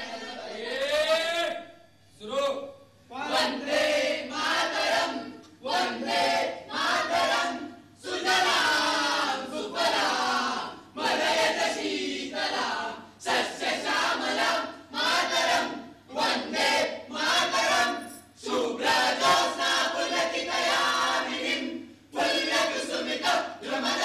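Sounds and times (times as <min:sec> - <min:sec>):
chorus of voices chanting: 0:00.0 - 0:01.6, 0:03.1 - 0:24.0.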